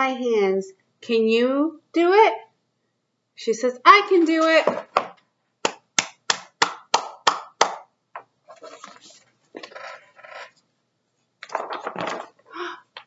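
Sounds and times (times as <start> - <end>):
person clapping hands: 5.6 - 7.9
book page turning: 8.5 - 10.1, 11.4 - 12.4.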